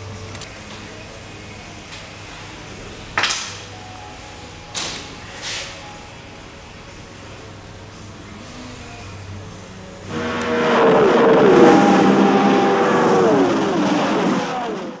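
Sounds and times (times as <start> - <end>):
racing car engine: 8.0 - 15.0.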